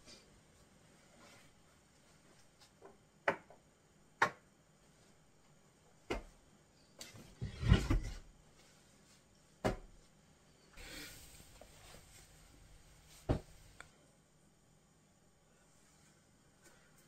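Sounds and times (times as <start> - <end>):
clothing rustling: 11.2 - 13.8.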